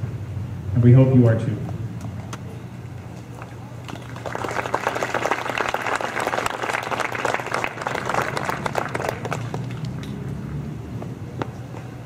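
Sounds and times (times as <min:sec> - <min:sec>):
audience applauding: 0:03.4 - 0:10.2.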